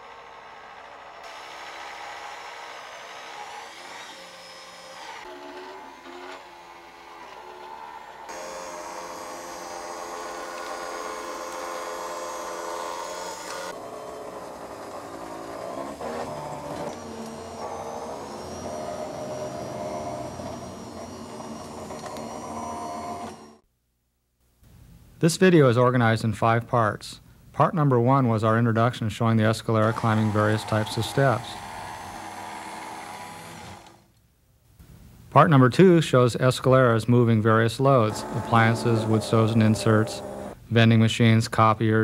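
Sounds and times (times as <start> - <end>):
electric motor whining: 0.0 - 23.6, 29.8 - 34.1, 37.8 - 40.6.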